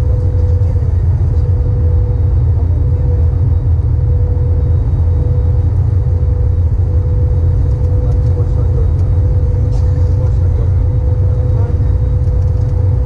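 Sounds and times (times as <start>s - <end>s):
airliner cabin engine rumble: 0.0s - 13.0s
faint steady whine: 0.0s - 13.0s.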